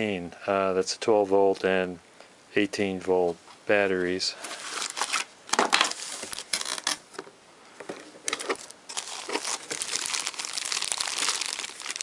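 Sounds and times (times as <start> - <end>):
plastic bag crinkling: 8.3 - 12.0.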